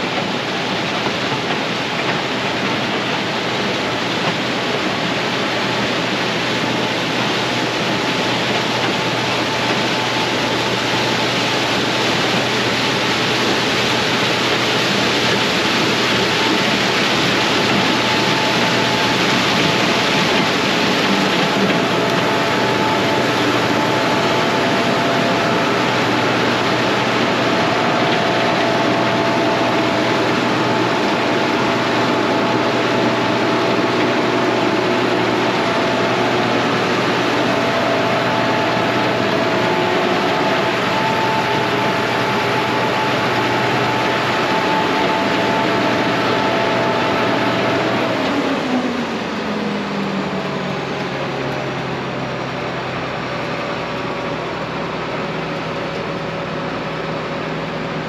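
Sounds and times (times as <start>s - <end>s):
combine harvester running: 0.0s - 58.0s
faint wavering whine: 6.8s - 58.0s.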